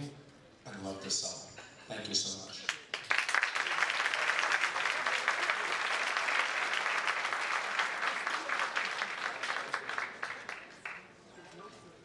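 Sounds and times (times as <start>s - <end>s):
audience applauding: 2.7s - 11.2s.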